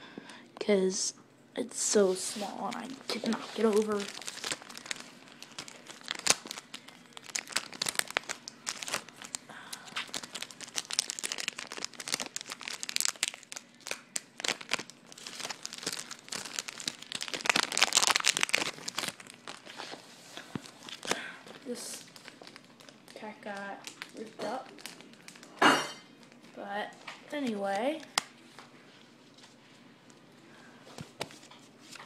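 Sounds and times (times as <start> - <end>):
foil pack crinkling and tearing: 2.2 - 25.6.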